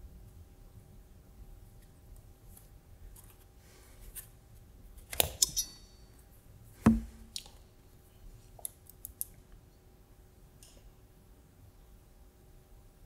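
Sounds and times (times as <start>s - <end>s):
loud knock: 6.9s - 7.2s.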